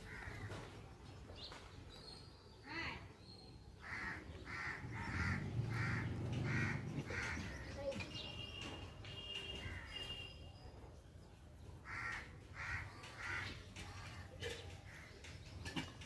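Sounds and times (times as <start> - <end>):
harsh animal calls: 3.8 - 7.7.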